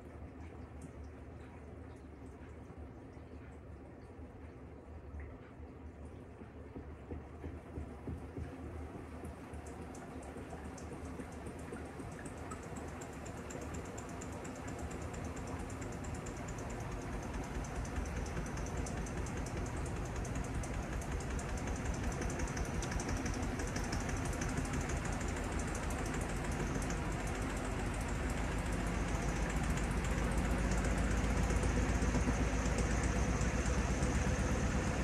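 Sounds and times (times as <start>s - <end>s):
washing machine spinning: 0.0s - 35.0s
fast dense ticking: 9.7s - 34.4s.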